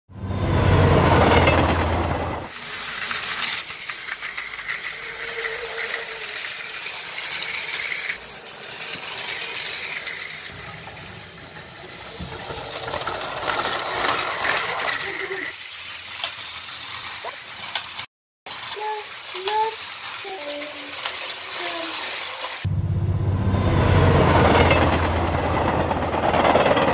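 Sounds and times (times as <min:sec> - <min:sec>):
toy train motor whining: 0:02.5 - 0:22.7
toy train wheels rattling: 0:02.5 - 0:22.7.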